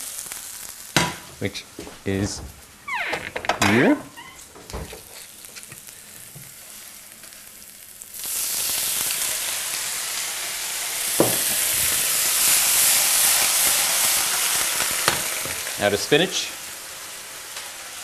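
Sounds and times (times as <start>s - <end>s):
wine hissing in hot pan: 0.0s - 1.3s, 4.4s - 18.0s
knock: 11.2s - 11.4s.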